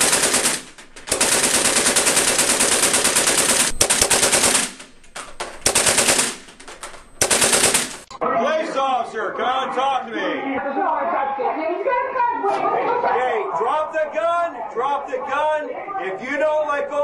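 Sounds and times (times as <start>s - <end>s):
air cannon firing bursts: 0.0s - 8.1s.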